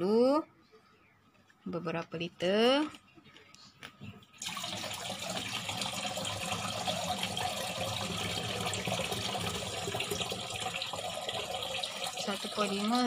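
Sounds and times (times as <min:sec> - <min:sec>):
water pouring into a plastic tank: 0:04.4 - 0:13.0.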